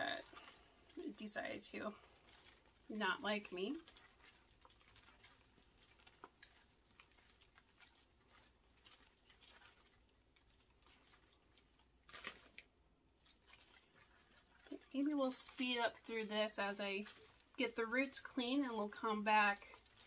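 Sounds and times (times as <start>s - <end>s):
plant and soil rustling: 0.0s - 20.0s.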